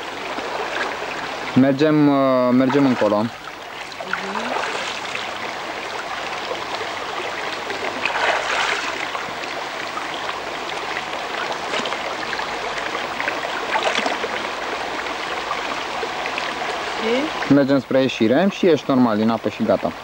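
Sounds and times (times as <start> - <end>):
stream water running: 0.0 - 20.0
splashes of person wading: 3.8 - 5.3, 7.8 - 9.3, 13.2 - 14.5.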